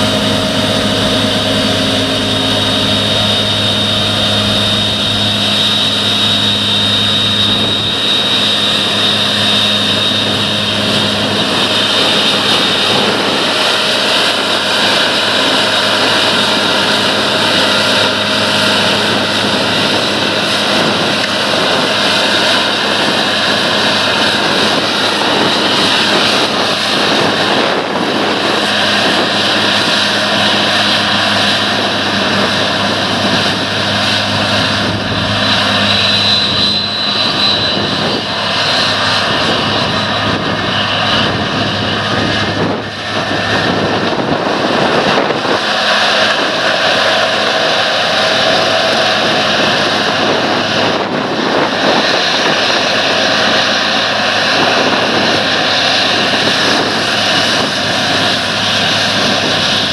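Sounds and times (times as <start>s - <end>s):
combine harvester engine drone: 0.0s - 59.9s
threshing machinery whine: 0.0s - 59.9s.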